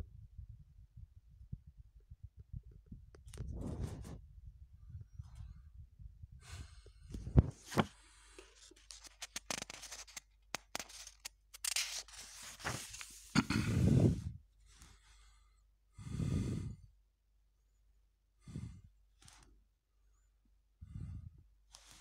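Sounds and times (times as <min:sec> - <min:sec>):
paper pages rustling: 0:07.4 - 0:13.7.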